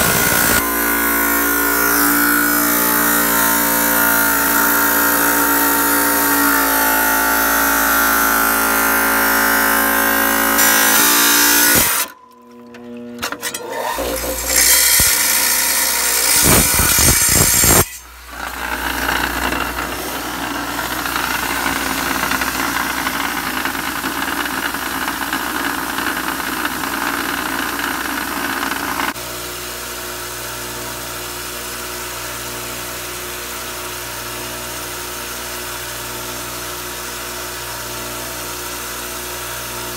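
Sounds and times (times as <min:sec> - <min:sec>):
grinder motor hum: 0:00.0 - 0:29.3.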